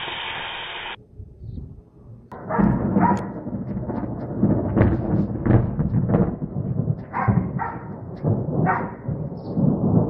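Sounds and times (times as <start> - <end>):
thunder rumbling: 2.3 - 10.0
dog barking: 2.5 - 3.3, 7.1 - 7.9, 8.6 - 9.0.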